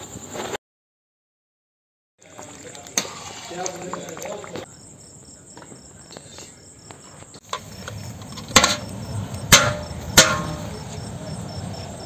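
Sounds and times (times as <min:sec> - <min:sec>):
crickets chirping: 0:00.0 - 0:00.6, 0:02.2 - 0:12.0
metal strainer knocking on pot: 0:09.5 - 0:10.7.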